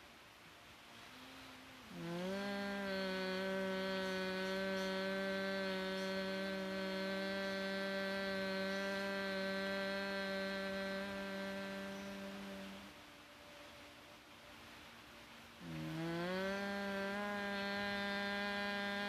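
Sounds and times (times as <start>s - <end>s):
woman humming one low note: 1.0s - 13.2s, 15.6s - 19.0s.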